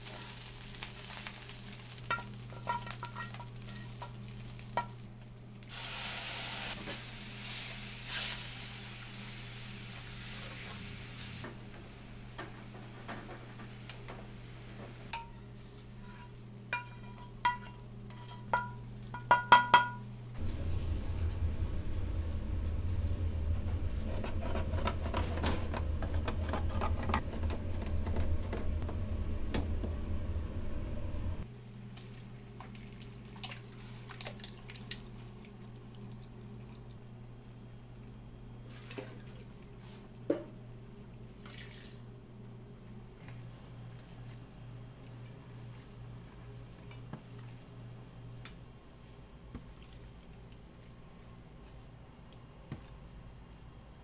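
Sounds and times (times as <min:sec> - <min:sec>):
low kitchen hum: 0:00.0 - 0:54.0
loud low rumble: 0:20.4 - 0:31.4.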